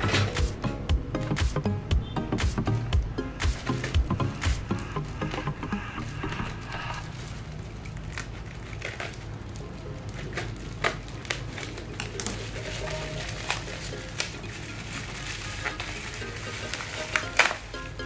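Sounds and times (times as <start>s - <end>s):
background music: 0.0s - 7.1s, 12.2s - 18.0s
plastic packaging crinkling: 3.5s - 18.0s.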